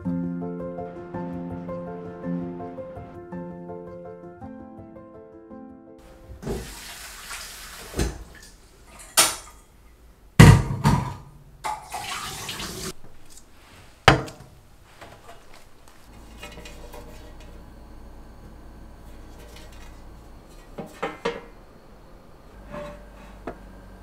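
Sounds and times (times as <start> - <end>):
tap water running: 6.0 - 9.6, 11.6 - 13.0
dishes clattering in sink: 7.8 - 9.6, 10.4 - 12.8, 16.2 - 17.6, 20.6 - 21.6.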